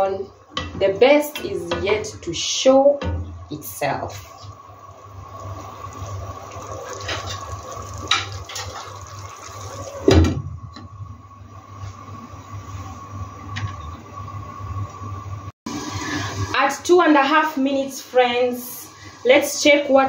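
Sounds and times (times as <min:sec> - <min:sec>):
steady hum: 0:00.0 - 0:08.5
curry bubbling in a pan: 0:04.5 - 0:10.2.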